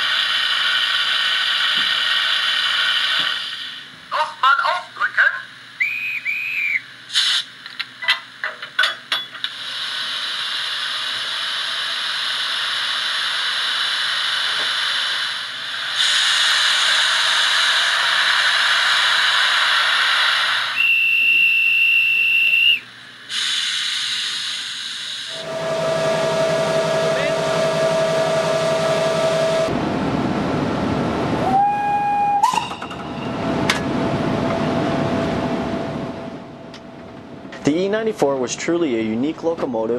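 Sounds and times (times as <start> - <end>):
high steady whistle tone: 5.8 - 6.9, 20.7 - 22.9, 25.3 - 29.7, 31.5 - 32.8
compressed air hissing: 7.1 - 7.6, 9.5 - 21.6, 22.6 - 27.5.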